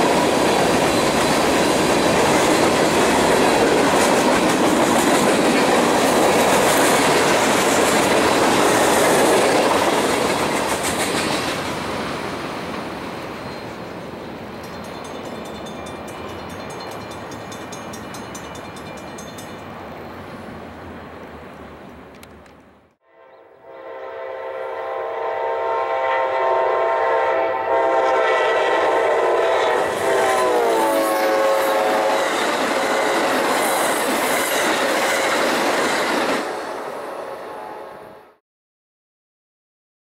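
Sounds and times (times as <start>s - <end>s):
passing train rumble: 0.0s - 38.4s
locomotive air horn: 23.0s - 33.8s, 37.3s - 38.4s.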